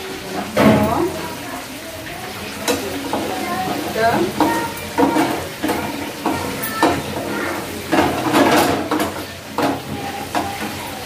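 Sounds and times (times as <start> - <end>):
chicken sizzling in a pan: 0.0 - 11.0
spoon scraping and knocking pan: 2.7 - 10.8.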